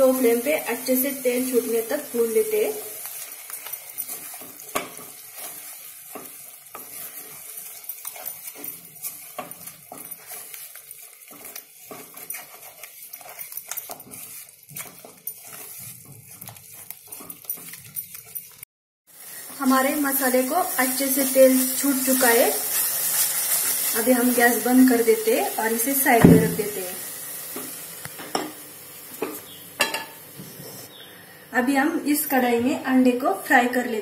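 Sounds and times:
wooden spatula stirring and scraping: 0.0 - 18.7, 19.8 - 26.8
paste sizzling in oil: 0.0 - 30.0.

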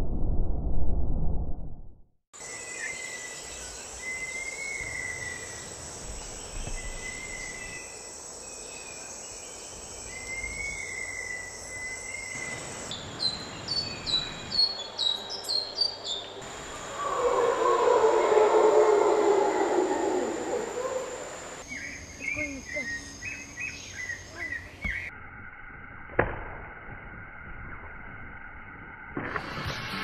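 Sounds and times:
high insect drone: 2.4 - 26.0
bird calling in long thin notes: 10.0 - 25.1.

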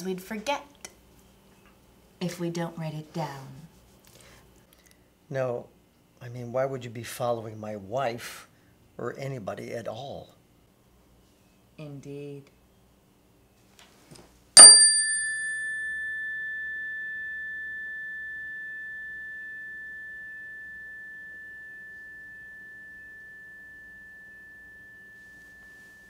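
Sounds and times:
metal chime ringing: 14.6 - 26.0.

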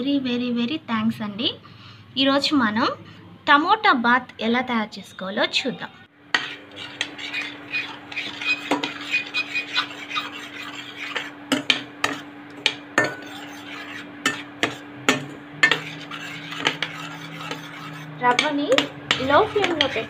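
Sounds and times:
steel spoon scraping a pan: 6.3 - 20.0.

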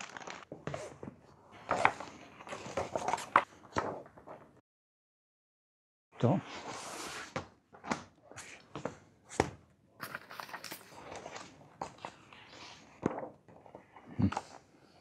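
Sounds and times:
paper sheets rustling: 0.0 - 0.6.

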